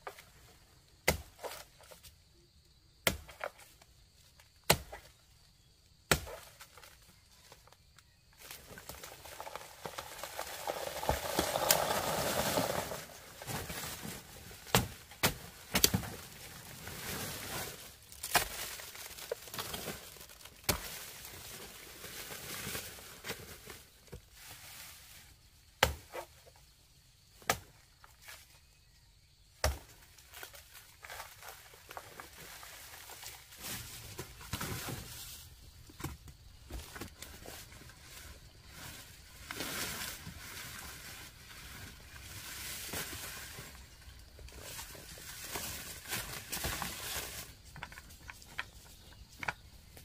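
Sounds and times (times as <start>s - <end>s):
dry leaves rustling and crackling: 8.4s - 14.6s, 15.9s - 23.8s, 37.4s - 47.7s.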